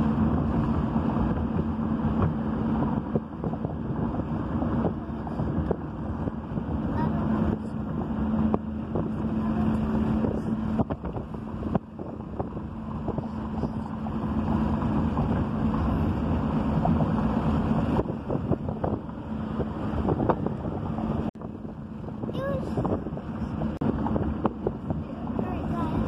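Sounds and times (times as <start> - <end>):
road rumble: 0.0 - 26.0
wind buffeting microphone: 0.0 - 26.0.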